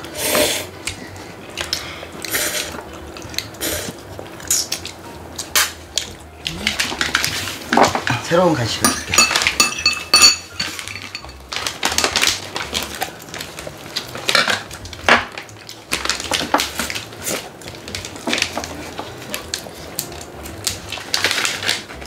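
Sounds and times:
cutlery and dishes clinking: 5.5 - 12.4.

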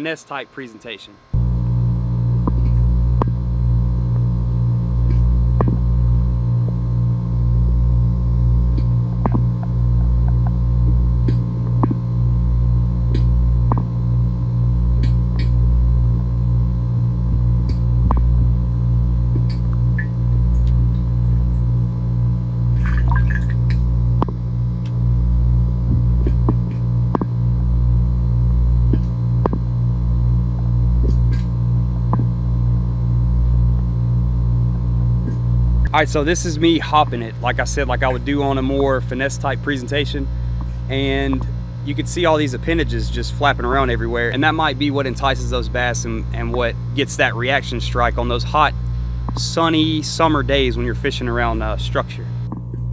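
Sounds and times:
underwater electrical hum: 0.0 - 52.9.

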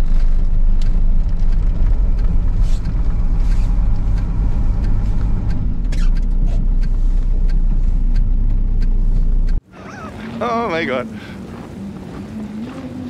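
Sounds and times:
truck engine under load: 0.0 - 10.4.

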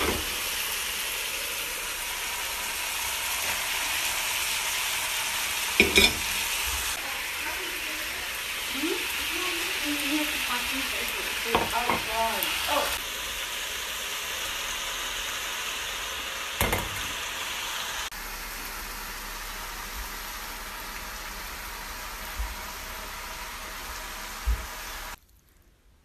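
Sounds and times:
food sizzling in a wok: 0.0 - 25.3.

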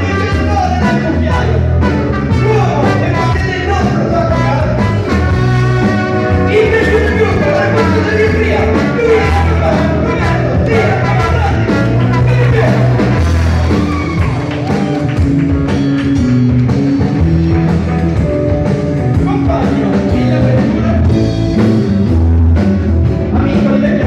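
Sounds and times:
live blues band: 0.0 - 24.0
men singing: 6.4 - 12.9.

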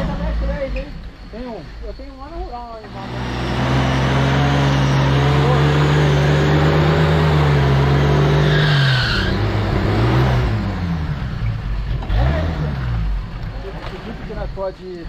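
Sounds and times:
jeep engine revving under load: 2.8 - 14.3.

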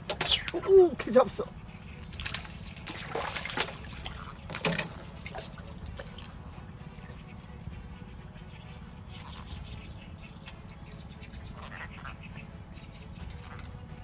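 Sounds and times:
water dripping and lapping: 1.9 - 7.1
fish splashing at surface: 2.0 - 6.4.

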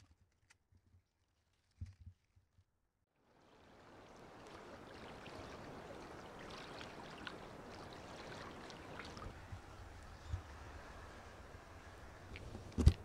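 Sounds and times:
water washing along shore: 3.3 - 13.0.

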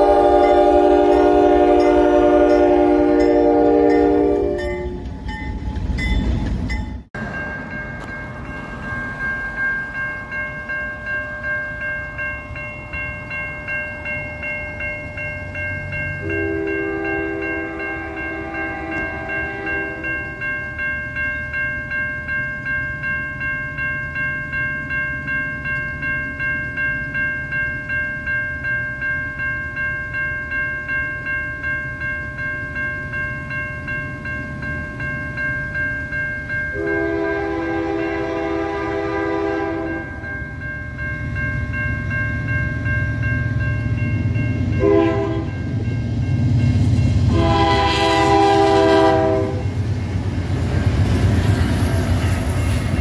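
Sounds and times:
locomotive horn blasts: 0.0 - 5.0, 16.2 - 20.2, 36.8 - 40.2, 44.8 - 45.6, 47.3 - 49.7
crossing warning bell ringing: 0.0 - 53.0
locomotive engine and wheels: 0.0 - 53.0.

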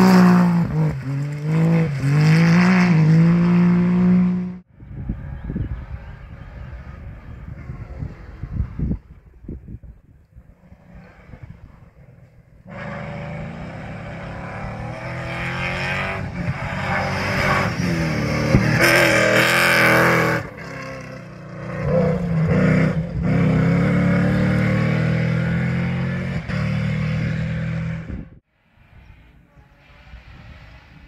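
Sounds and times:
truck engine revving: 12.7 - 28.2.

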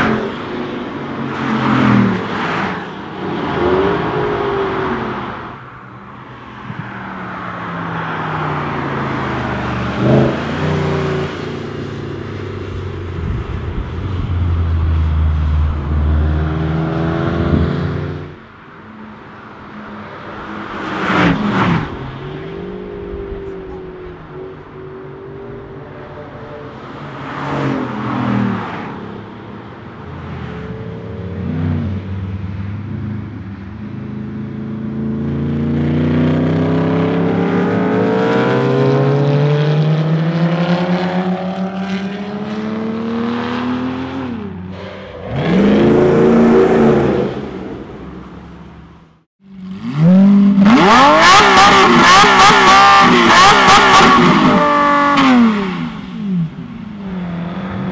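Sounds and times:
loud car pass: 0.0 - 57.9
sports cars accelerating past: 34.4 - 48.5.

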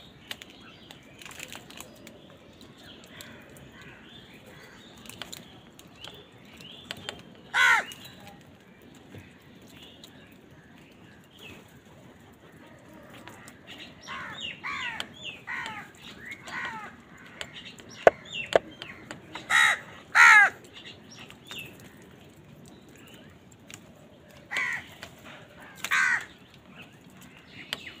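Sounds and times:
crows cawing: 7.5 - 8.0, 13.1 - 20.6, 24.5 - 26.4.

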